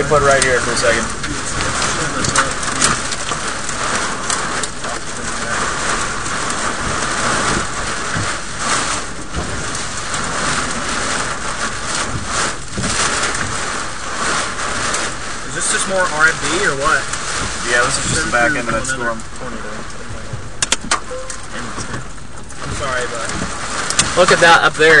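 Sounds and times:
heavy rain beating on a car: 0:00.0 - 0:25.0.

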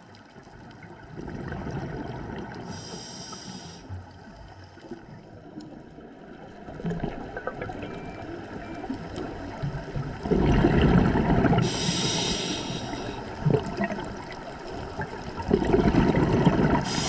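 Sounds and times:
regulator bubbles underwater: 0:00.0 - 0:17.0
high hiss: 0:02.8 - 0:03.9, 0:11.7 - 0:13.2.

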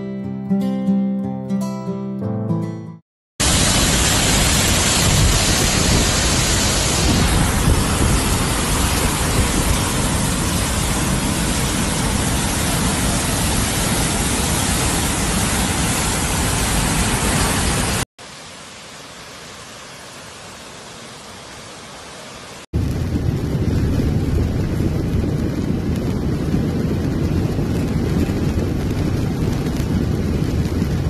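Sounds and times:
floodwater rushing: 0:03.4 - 0:31.0.

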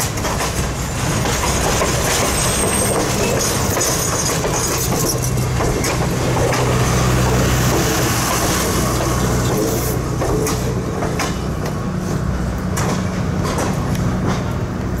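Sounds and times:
wheel clicks over rail joints: 0:00.0 - 0:11.8, 0:12.6 - 0:15.0
train coaches rumbling past: 0:00.0 - 0:15.0.

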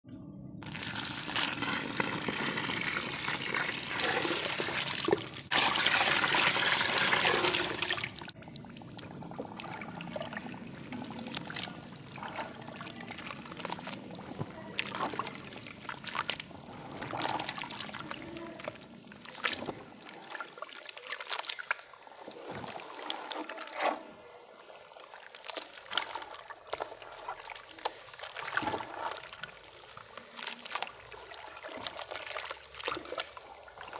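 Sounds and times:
hands squelching wet paste: 0:00.6 - 0:33.9
water pouring into powder: 0:00.6 - 0:33.9.

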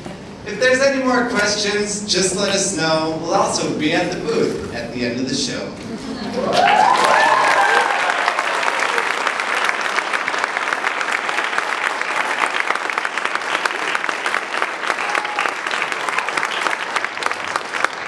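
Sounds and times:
audience applauding: 0:06.4 - 0:18.0.

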